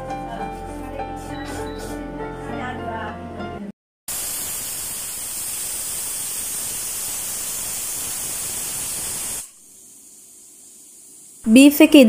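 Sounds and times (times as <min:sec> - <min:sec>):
pressure cooker steam hissing: 0:04.1 - 0:11.8.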